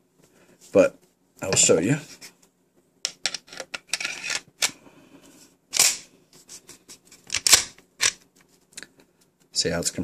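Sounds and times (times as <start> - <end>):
metal parts scraping: 3.3 - 4.5.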